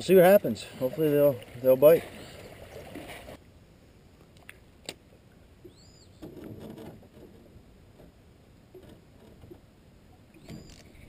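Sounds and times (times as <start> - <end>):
water lapping: 0.0 - 3.4.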